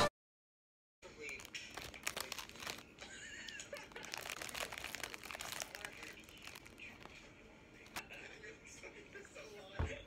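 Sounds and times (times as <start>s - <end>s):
plastic wrapper crinkling: 1.0s - 8.1s
crunchy pastry bites: 1.2s - 7.2s.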